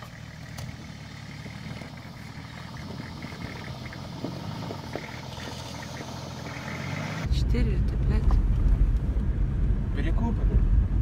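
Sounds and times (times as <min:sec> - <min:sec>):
engine running at low revs: 0:00.0 - 0:11.0.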